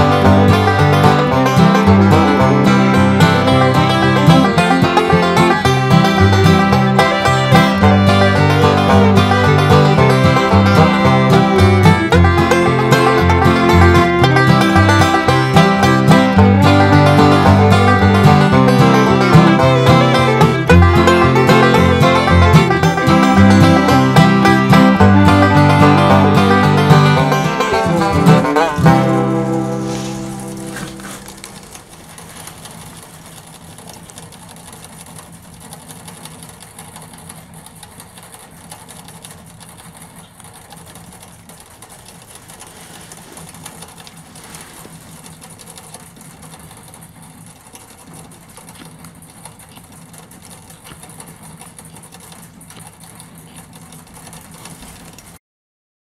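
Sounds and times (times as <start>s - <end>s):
banjo music: 0.0s - 32.6s.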